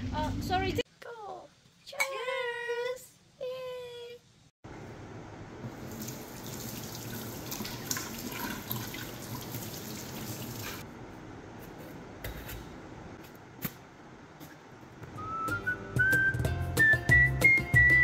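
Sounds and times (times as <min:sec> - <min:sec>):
kitchen tap running into sink: 0:05.7 - 0:10.8.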